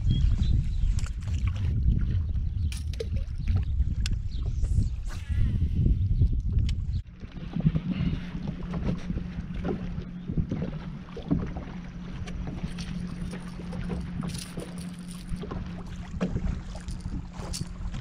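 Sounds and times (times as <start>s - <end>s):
steady low hum: 0.0s - 18.0s
wind on microphone: 0.0s - 18.0s
water slapping against boat hull: 6.4s - 18.0s
water splash: 9.6s - 18.0s.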